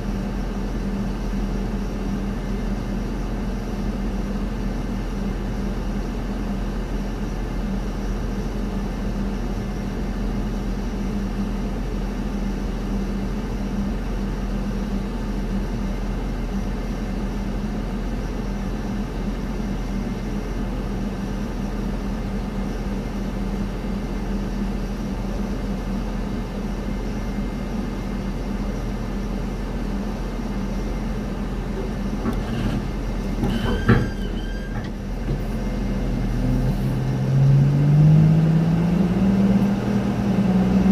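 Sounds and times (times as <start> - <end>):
low drone of ramp machinery: 30.5 - 40.9.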